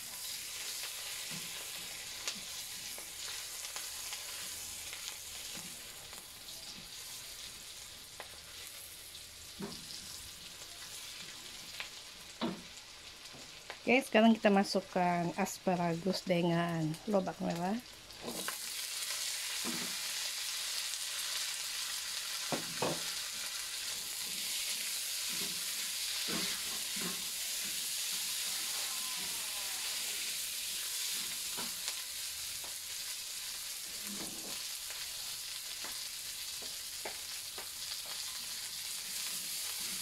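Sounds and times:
vegetables sizzling in hot oil: 0.0s - 40.0s
spatula scraping and knocking pan: 25.2s - 27.3s.

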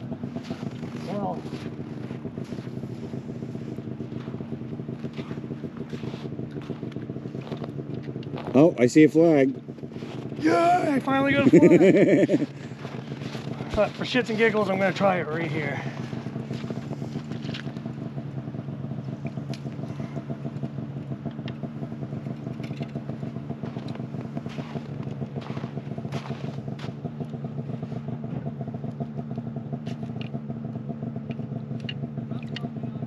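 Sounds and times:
power ice auger running: 22.6s - 26.9s.

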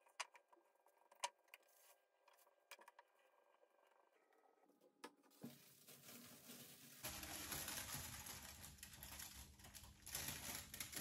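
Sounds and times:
hands crinkling materials: 5.3s - 11.0s.

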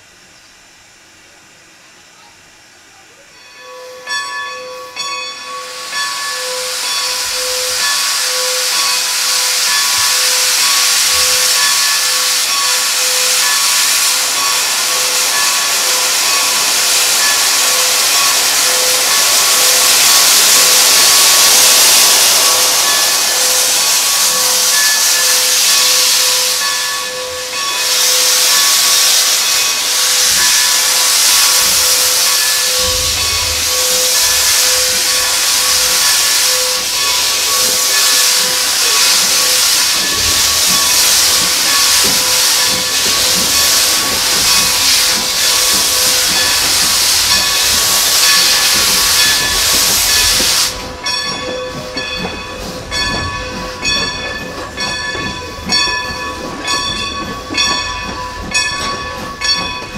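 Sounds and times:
steam hissing: 3.3s - 59.9s
bell-like tone ringing: 32.3s - 38.2s.

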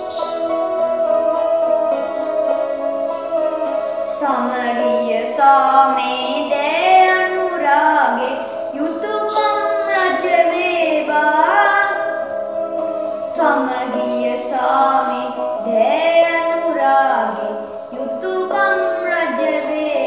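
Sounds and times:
young female voices singing: 0.0s - 12.0s, 13.3s - 20.0s
steady drone: 0.0s - 14.7s.

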